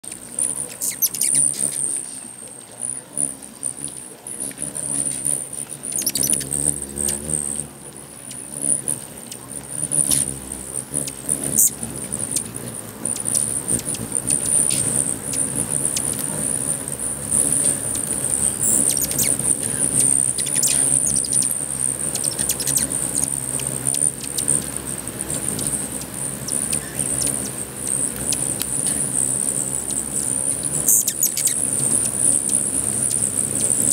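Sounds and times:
hummingbird wings humming: 0.0s - 33.9s
high chirps of hummingbirds: 0.1s - 33.9s.

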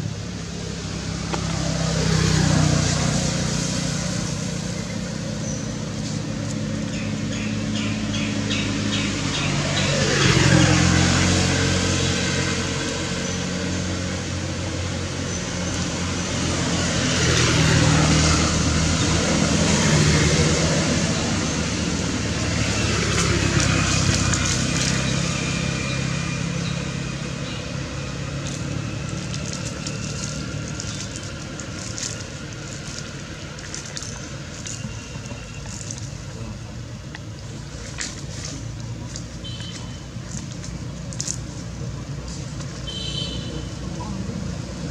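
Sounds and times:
road traffic passing: 0.0s - 44.9s.

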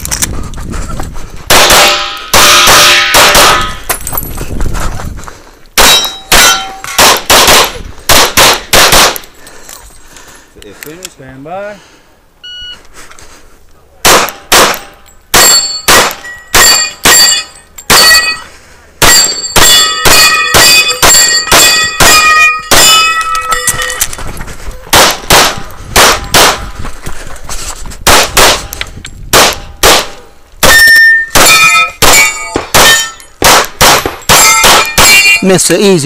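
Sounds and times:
pistol shots: 1.5s - 3.8s, 5.8s - 9.3s, 14.0s - 18.3s, 19.0s - 23.3s, 24.9s - 26.7s, 28.0s - 28.7s, 29.3s - 35.4s
steel targets ringing: 1.6s - 3.9s, 5.8s - 7.0s, 15.4s - 24.0s, 30.6s - 35.8s.

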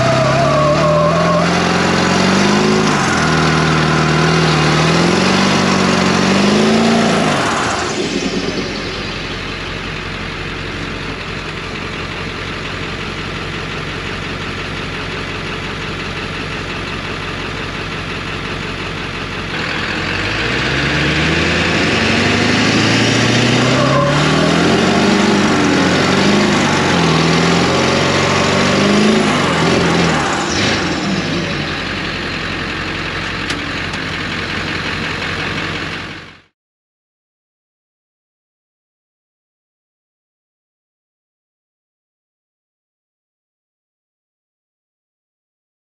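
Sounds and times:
tires spinning on concrete: 0.0s - 11.2s, 15.5s - 36.5s
truck engine revving: 0.0s - 36.5s.

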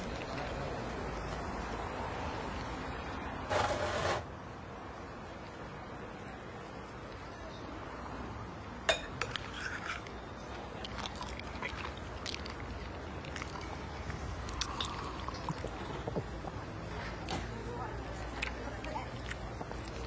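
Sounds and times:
cutlery clinking on tableware: 8.9s - 10.1s
glass clinking: 8.9s - 10.1s
fork scraping in bowl: 9.2s - 10.2s.

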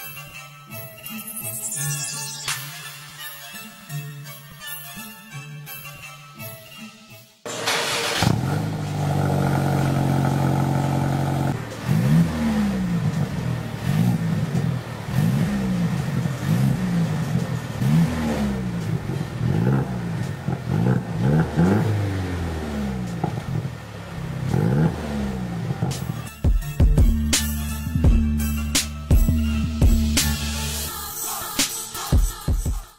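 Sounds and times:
car engine idling and revving: 7.5s - 30.9s.

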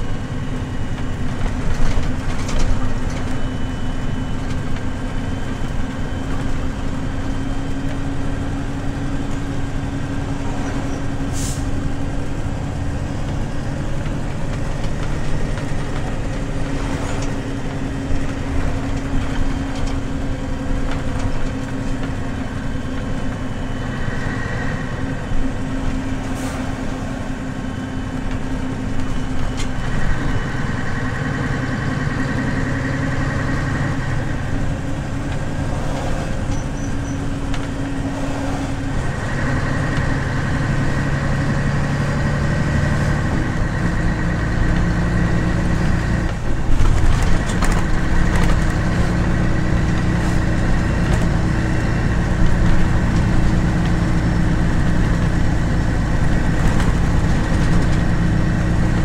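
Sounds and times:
bus diesel engine droning: 0.0s - 59.0s
road noise: 0.0s - 59.0s.

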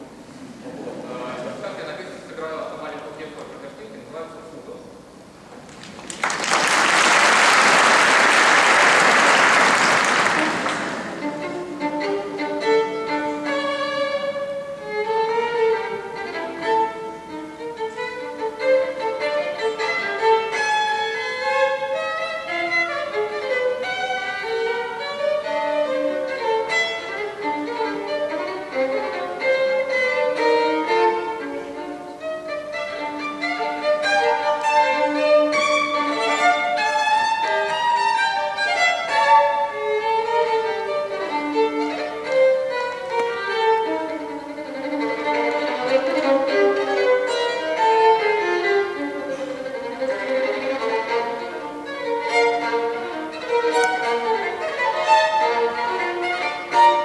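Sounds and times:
audience applause: 5.6s - 11.3s
solo violin playing: 7.7s - 57.0s.

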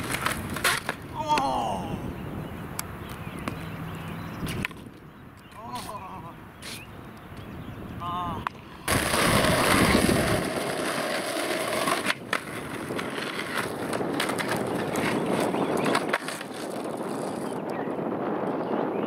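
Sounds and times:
skateboard clacks: 0.0s - 1.5s, 8.4s - 17.7s
skateboard wheels rolling on pavement: 0.0s - 1.5s, 2.1s - 19.0s.

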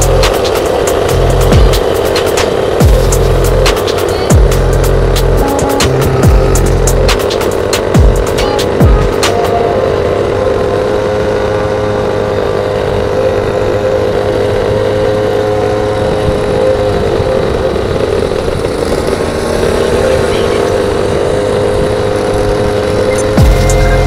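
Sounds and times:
road and wind noise: 0.0s - 24.0s
small scooter engine revving: 0.0s - 24.0s.

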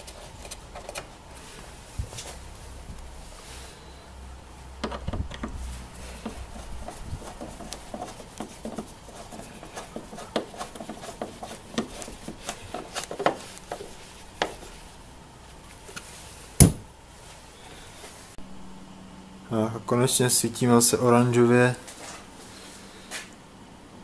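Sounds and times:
sharp knock: 16.6s - 16.8s.

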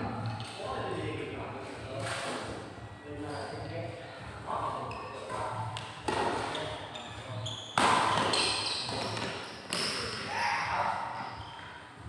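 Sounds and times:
rackets hitting shuttlecock: 7.8s - 10.3s.

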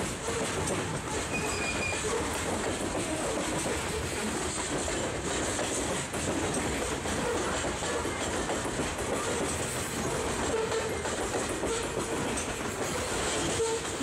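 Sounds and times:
clatter over rail joints: 0.0s - 14.0s
train wheels on rails: 0.0s - 14.0s.

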